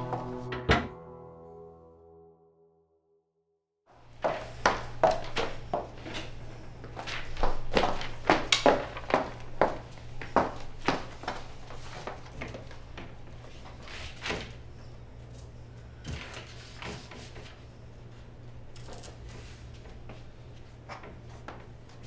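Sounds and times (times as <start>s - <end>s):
footsteps on hard floor: 4.1s - 12.8s.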